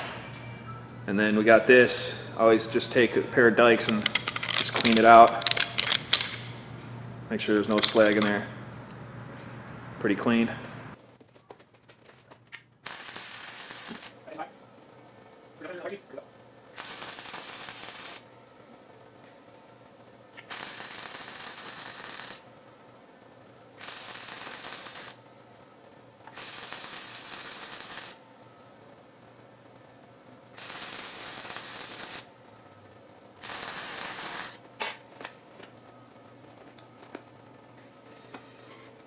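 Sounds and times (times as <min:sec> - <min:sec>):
welder arc bursts: 0:12.8 - 0:14.4, 0:16.7 - 0:18.3, 0:20.4 - 0:22.5, 0:23.8 - 0:25.2, 0:26.3 - 0:28.2, 0:30.5 - 0:32.3, 0:33.4 - 0:34.6.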